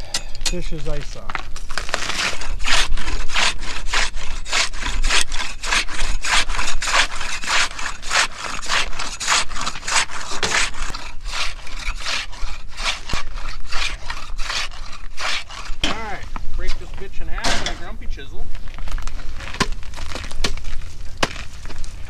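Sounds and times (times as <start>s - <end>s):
ice saw rasping: 1.6s - 16.4s.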